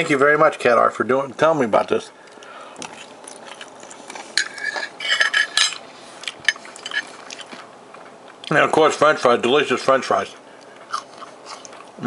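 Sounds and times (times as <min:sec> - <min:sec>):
fork clinking and scraping on plate: 0:04.4 - 0:05.8, 0:06.5 - 0:07.5.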